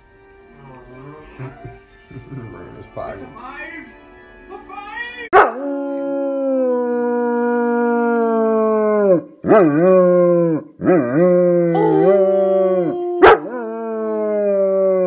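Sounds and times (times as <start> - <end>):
dog howling: 5.4 - 15.0.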